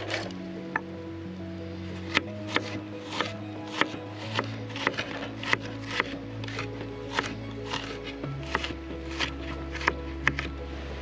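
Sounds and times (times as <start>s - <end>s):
soft background music: 0.0s - 11.0s
knife chopping on wooden board: 2.0s - 10.5s.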